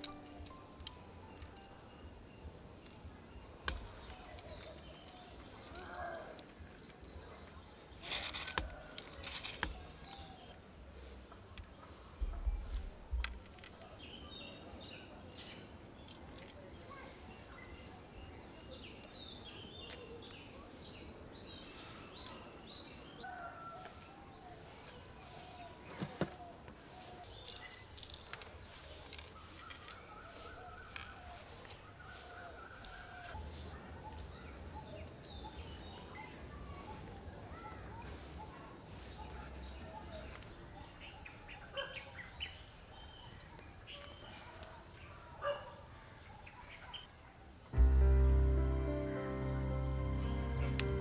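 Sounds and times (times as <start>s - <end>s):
high-pitched hum: 47.8s - 51.0s.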